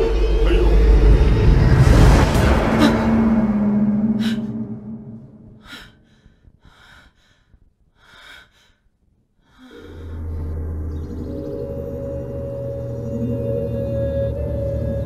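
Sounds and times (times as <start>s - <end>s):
music: 0.0s - 2.8s, 9.8s - 15.0s
low music drone: 0.0s - 5.7s, 9.6s - 15.0s
woman gasping: 5.6s - 10.2s.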